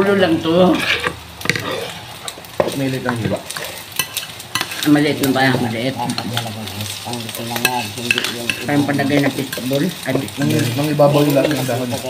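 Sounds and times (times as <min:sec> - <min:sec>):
rice sizzling: 0:00.0 - 0:12.0
spatula scraping rice on griddle: 0:00.5 - 0:02.8, 0:03.4 - 0:05.0, 0:07.6 - 0:08.8
person's voice: 0:02.6 - 0:03.8, 0:04.8 - 0:12.0.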